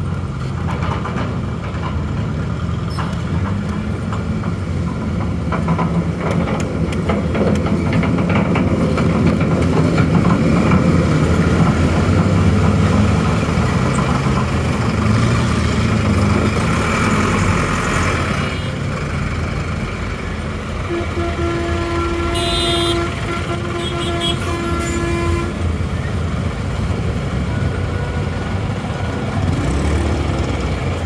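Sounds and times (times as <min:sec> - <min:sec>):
large engine running: 0:00.0 - 0:23.3
rattles and clicks: 0:00.1 - 0:15.1.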